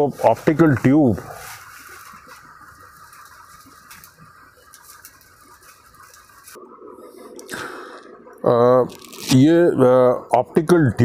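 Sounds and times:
room hum: 0.0s - 11.0s.

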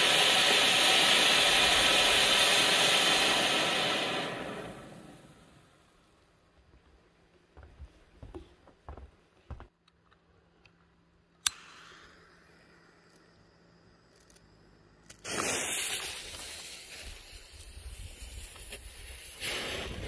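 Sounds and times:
firework fountain spraying sparks: 0.0s - 5.8s, 15.1s - 20.0s
fuse flame hissing: 0.0s - 5.9s, 11.4s - 20.0s.

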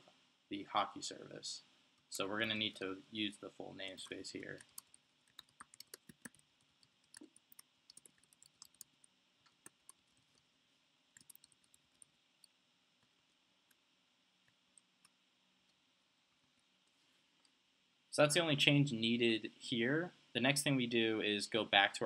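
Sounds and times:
keyboard typing: 4.5s - 10.4s, 11.2s - 12.1s.

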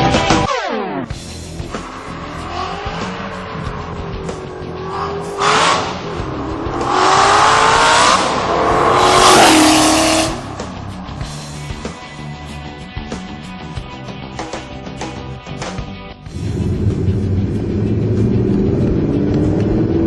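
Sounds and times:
car engine revving hard: 1.4s - 11.8s.

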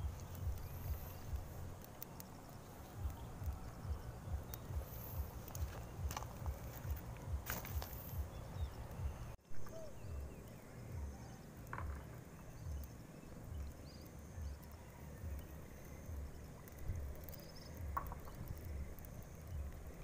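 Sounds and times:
steady outdoor hiss: 0.0s - 20.0s
twig fire crackling: 0.0s - 20.0s
low thumps: 2.9s - 9.4s.

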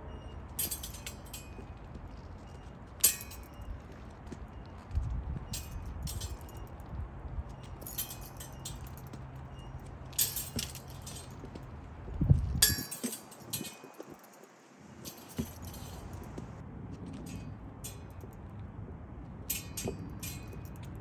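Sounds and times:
steel blades clinking: 0.6s - 1.8s, 2.5s - 3.8s, 5.5s - 6.8s, 7.6s - 11.6s, 12.6s - 16.5s, 17.2s - 18.4s, 19.5s - 21.0s.

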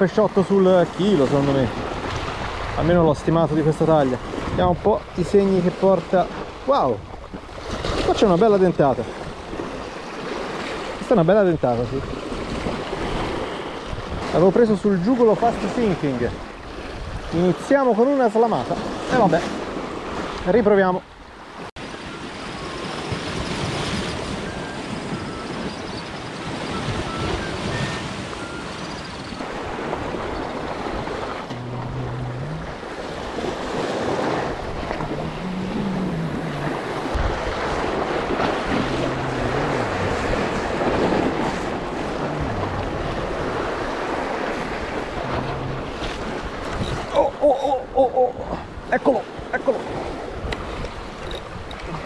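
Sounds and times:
wind buffeting microphone: 12.0s - 14.4s, 16.2s - 17.4s, 22.2s - 52.0s
waves washing against rocks: 21.8s - 47.2s.

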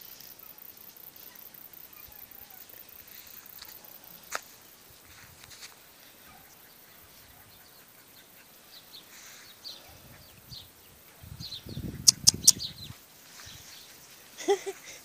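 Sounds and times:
small birds chirping: 6.0s - 15.0s.

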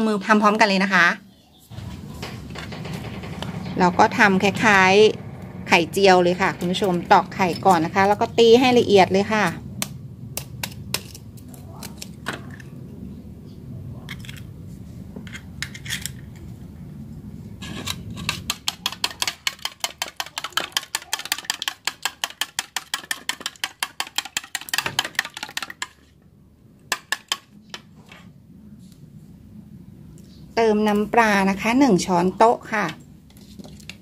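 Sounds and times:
spoon tapping egg: 18.5s - 25.9s.

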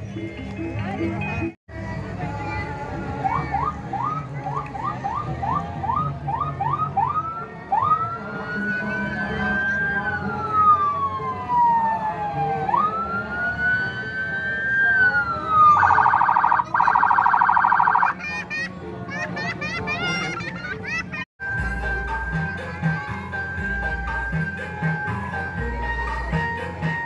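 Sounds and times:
electronic siren: 4.8s - 18.2s.

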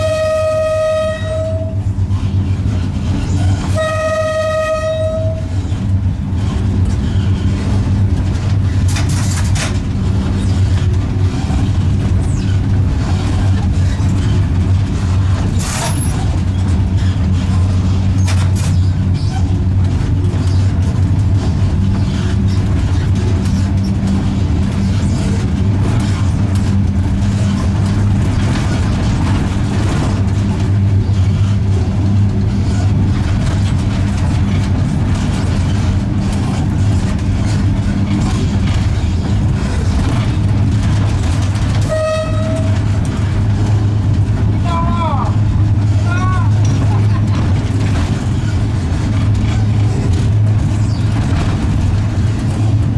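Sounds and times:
train horn toot: 0.0s - 1.9s, 3.5s - 5.6s, 41.8s - 42.9s
locomotive hum: 0.0s - 52.9s
wheel and rail rumble: 0.0s - 52.9s.

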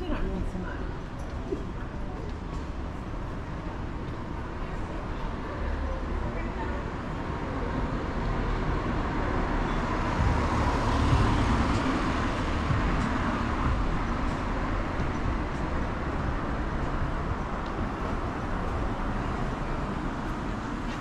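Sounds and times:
city traffic noise: 0.0s - 21.0s
car driving past: 8.5s - 20.9s.

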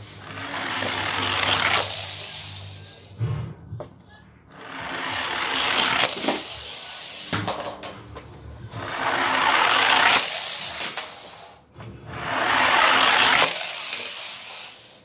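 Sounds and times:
toy cars rattling down tube: 0.2s - 3.1s, 4.7s - 8.0s, 8.8s - 11.6s, 12.2s - 15.0s
toy cars clicking on floor: 0.2s - 3.2s, 4.8s - 8.3s, 9.0s - 11.6s, 12.2s - 15.0s.

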